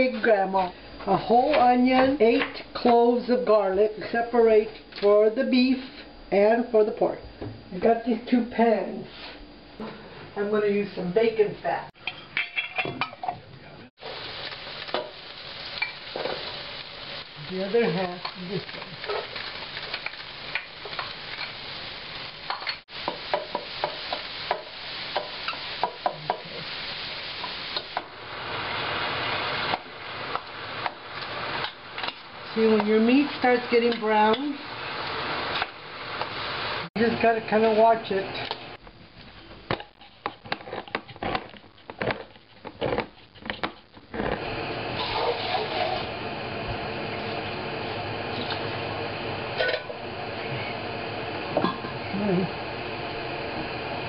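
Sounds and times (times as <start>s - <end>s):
onion and garlic sizzling in fat: 0.0s - 7.0s, 7.7s - 9.5s, 13.8s - 54.0s
spatula scraping and tapping pan: 22.5s - 26.6s, 39.3s - 44.1s.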